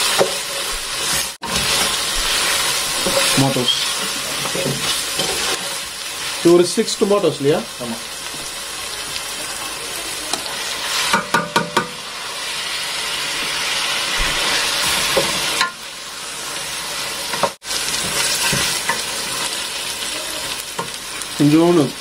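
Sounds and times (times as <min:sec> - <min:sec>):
vegetables sizzling in hot oil: 0:00.0 - 0:22.0
spatula knocking and scraping pot: 0:11.0 - 0:12.0.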